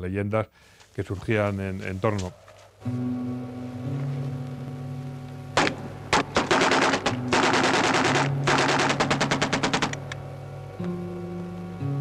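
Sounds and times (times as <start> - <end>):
film score low notes: 1.4 - 12.0
single gunshots: 5.6 - 9.9
automatic gunfire bursts: 5.6 - 10.0.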